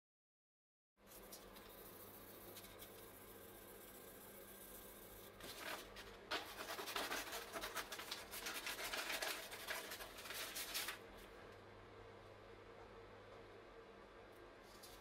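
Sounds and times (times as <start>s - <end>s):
scissors snipping paper: 5.4s - 11.0s
paper crinkling and rustling: 5.4s - 11.4s.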